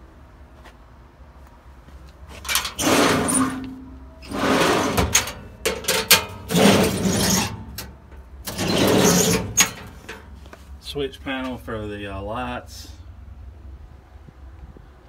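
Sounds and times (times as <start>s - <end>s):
metal drawers sliding: 2.3s - 10.5s.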